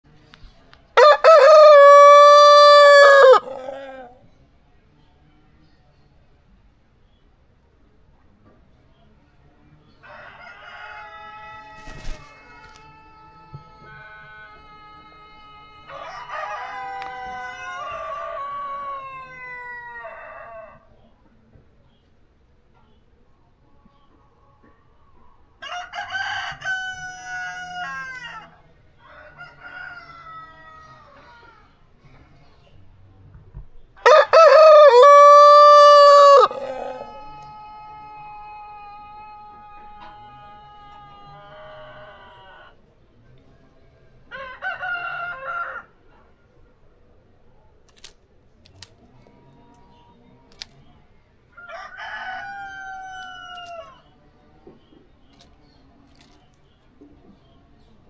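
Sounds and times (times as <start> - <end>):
rooster crowing: 1.0 - 4.2, 15.8 - 20.8, 34.0 - 42.7, 51.6 - 54.0.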